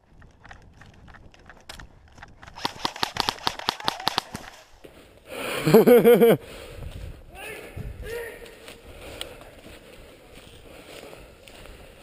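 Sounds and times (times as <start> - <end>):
airsoft gun firing bursts: 2.5 - 4.5.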